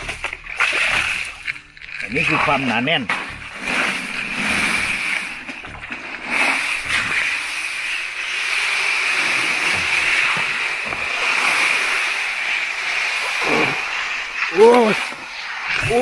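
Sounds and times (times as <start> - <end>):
steady high hiss: 6.2 - 16.0.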